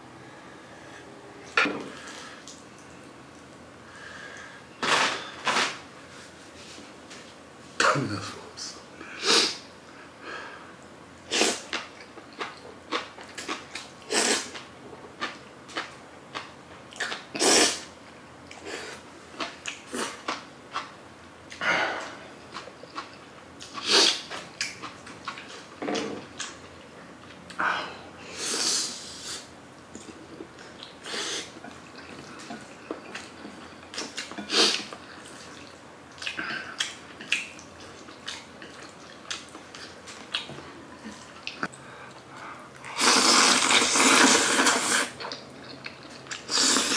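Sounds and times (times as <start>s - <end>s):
person chewing noodles: 18.5s - 26.6s, 28.5s - 46.9s
noodle slurping: 42.9s - 45.2s, 46.4s - 46.9s.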